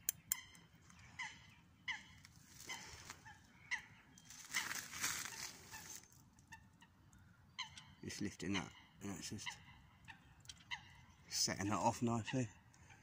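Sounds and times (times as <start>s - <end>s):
sharp clicks: 0.0s - 0.6s
birds calling: 0.0s - 13.0s.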